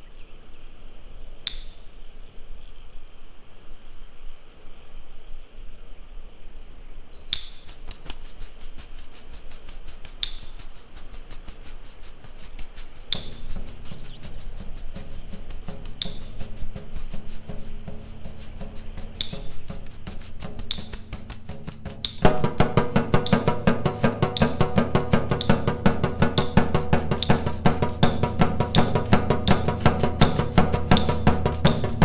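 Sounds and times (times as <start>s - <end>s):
low hiss: 0.0s - 32.0s
bird chirps: 6.4s - 32.0s
fast even ticking: 7.7s - 32.0s
low sustained music tones: 11.5s - 32.0s.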